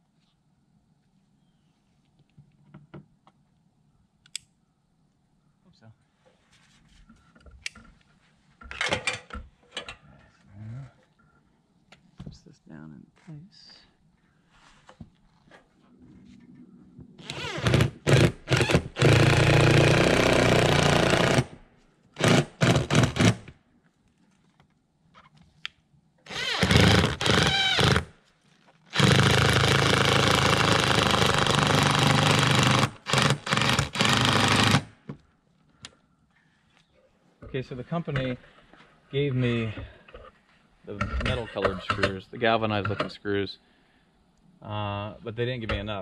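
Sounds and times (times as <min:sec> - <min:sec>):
cordless drill driving screws: 0:17.2 - 0:21.5, 0:22.2 - 0:23.4, 0:26.3 - 0:28.1, 0:28.9 - 0:34.9.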